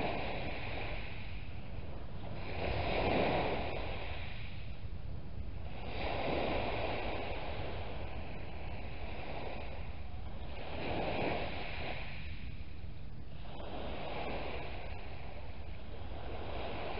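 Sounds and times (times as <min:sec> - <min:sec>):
waves washing over shingle: 0:00.0 - 0:01.5
wind rumble on microphone: 0:00.0 - 0:16.9.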